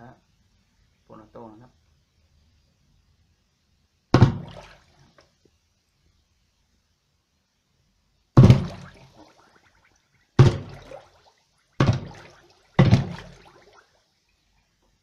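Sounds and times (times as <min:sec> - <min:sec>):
underwater pistol shots: 0:04.1 - 0:05.0, 0:08.4 - 0:09.6, 0:10.4 - 0:11.2, 0:11.8 - 0:13.8.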